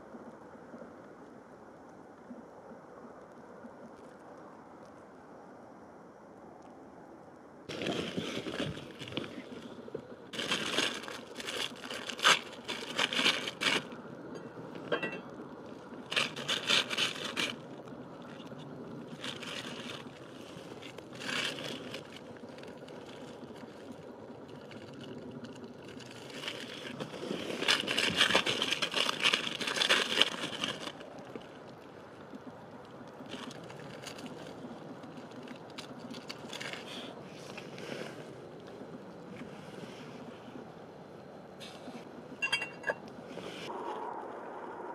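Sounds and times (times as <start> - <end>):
plastic wrapper crinkling and tearing: 10.3 - 14.3, 15.6 - 31.8, 33.2 - 37.1.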